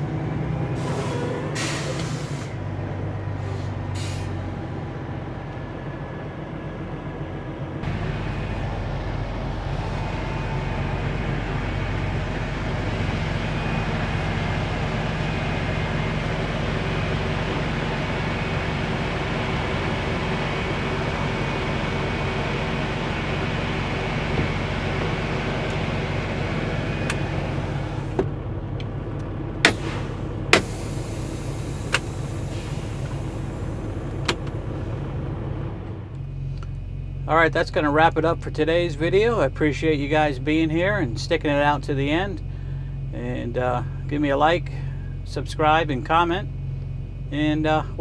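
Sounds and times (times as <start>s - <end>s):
diesel truck engine running: 0.0s - 48.0s
air brake hisses: 0.7s - 2.6s, 3.4s - 4.4s, 29.7s - 33.7s.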